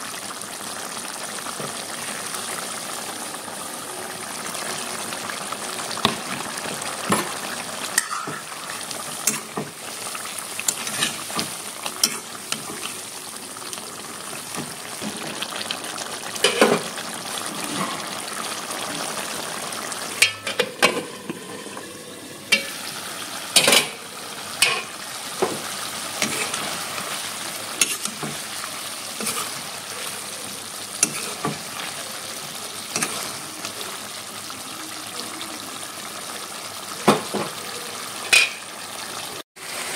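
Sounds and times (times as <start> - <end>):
curry sizzling in an iron pan: 0.0 - 39.9
metal ladle scraping a pan: 10.6 - 13.0, 26.2 - 26.9, 27.8 - 28.4, 29.2 - 29.9, 31.0 - 31.7.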